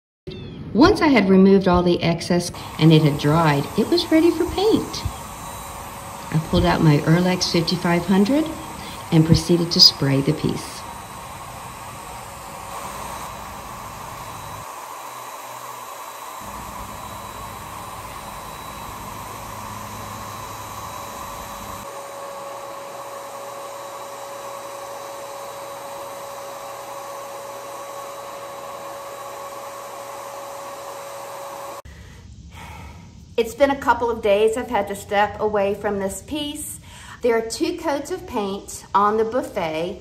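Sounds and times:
paint sprayer turbine hissing air: 2.5 - 32.0.

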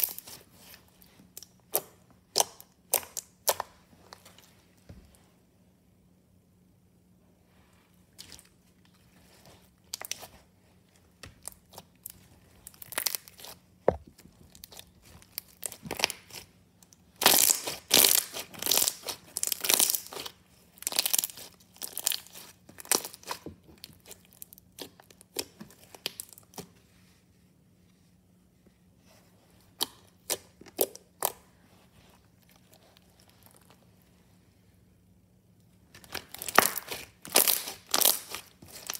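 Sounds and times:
slime crackling and popping: 0.0 - 3.8, 9.8 - 10.4, 11.2 - 26.6, 35.9 - 38.9.

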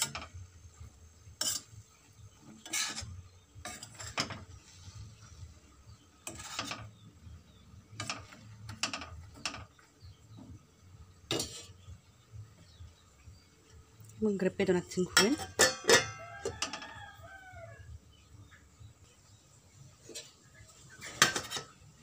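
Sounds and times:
metal spoon scraping a wok: 0.0 - 0.5, 1.2 - 9.8, 11.2 - 12.0, 15.1 - 17.0, 19.9 - 22.0.

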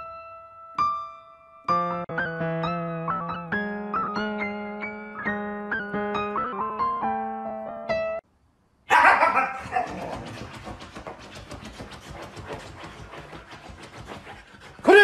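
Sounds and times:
dog vocal call: 8.9 - 10.9
dog pawing at cushion: 9.9 - 14.7.

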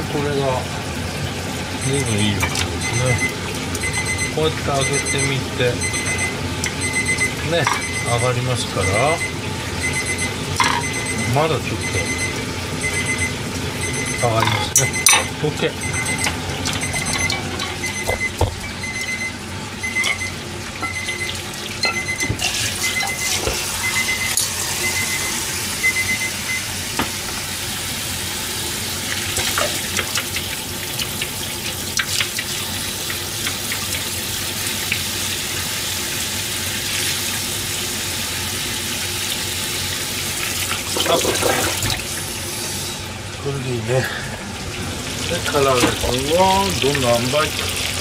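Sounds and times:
high electronic beep: 1.8 - 26.6
pot knocking: 10.6 - 11.0, 16.7 - 18.6.

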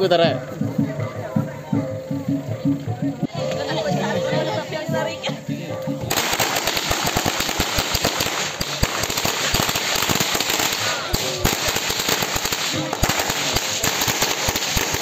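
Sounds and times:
firecrackers going off: 6.1 - 15.0.

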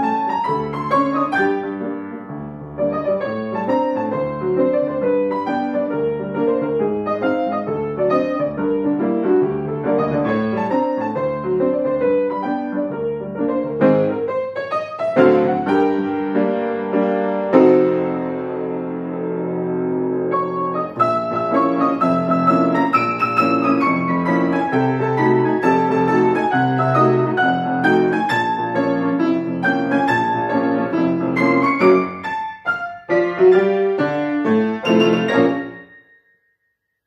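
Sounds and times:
grand piano playing: 0.0 - 36.4.

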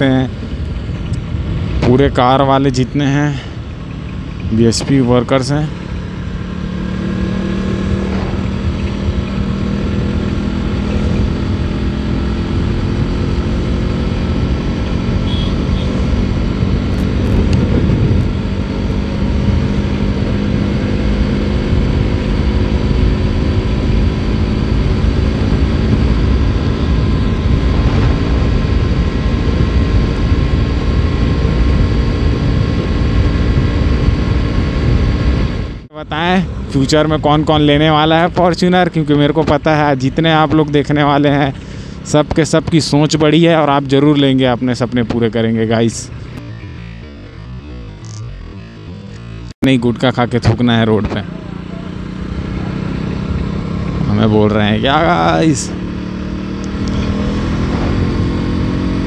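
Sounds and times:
motorcycle engine cruising: 0.0 - 59.0
wind noise on microphone: 15.8 - 19.8, 24.2 - 35.9.

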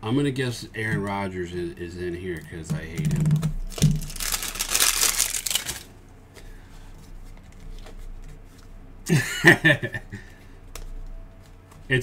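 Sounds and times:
hands handling plastic: 2.4 - 8.8
plastic packaging crinkling: 3.0 - 5.9.

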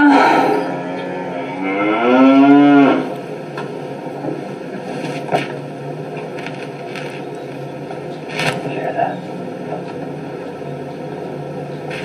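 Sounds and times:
man moaning: 0.0 - 2.2.

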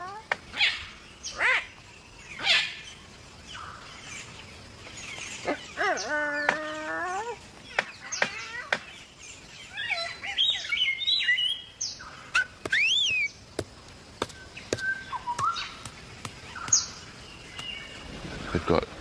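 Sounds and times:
cockatoo whistled calls: 12.3 - 13.3, 14.8 - 15.9.

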